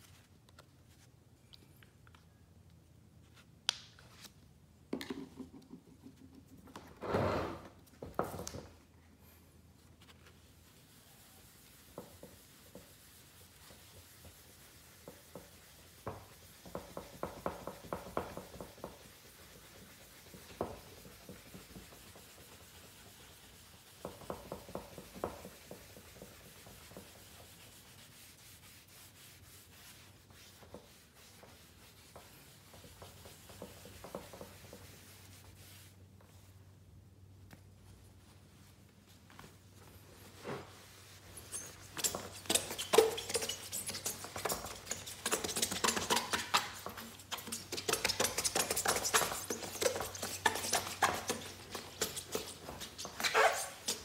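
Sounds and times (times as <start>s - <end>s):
scratchy rubbing on plastic lens: 41.5s - 54.0s.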